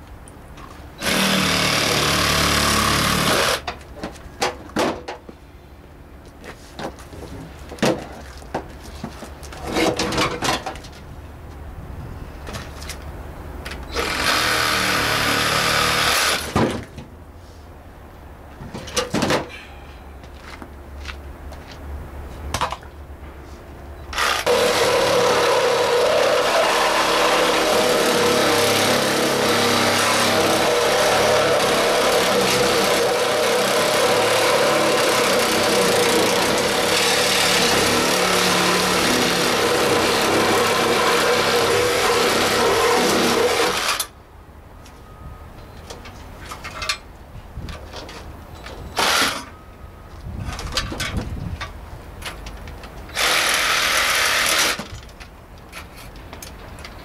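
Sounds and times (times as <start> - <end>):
cordless power tool on metal: 1.0 - 3.7, 13.9 - 16.6, 24.1 - 44.2, 49.0 - 49.5, 53.1 - 55.0.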